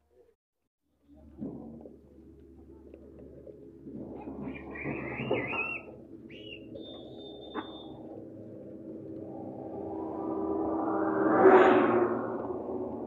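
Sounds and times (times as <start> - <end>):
bird warbling call: 4.4 - 8.1
high whistled bird note: 4.5 - 8.1.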